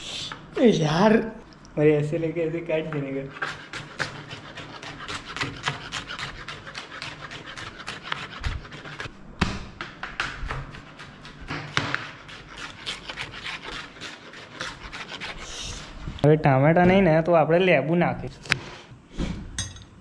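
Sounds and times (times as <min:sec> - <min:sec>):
knife chopping on plastic board: 0:02.9 - 0:15.3.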